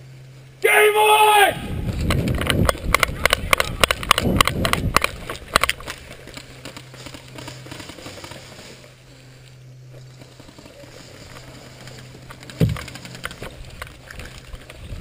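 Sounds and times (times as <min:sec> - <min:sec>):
low rumbling: 0:01.5 - 0:07.7
sharp clicks and pops: 0:02.0 - 0:08.0, 0:12.2 - 0:14.8.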